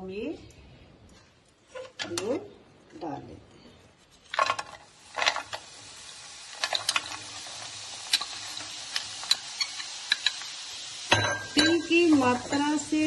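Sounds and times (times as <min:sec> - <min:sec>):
jaggery pieces rattling into pan: 0:04.3 - 0:05.8, 0:06.4 - 0:10.4
sizzling in a pan: 0:04.3 - 0:13.0
spoon clicking on bowl and pan: 0:09.0 - 0:10.5, 0:11.1 - 0:12.8.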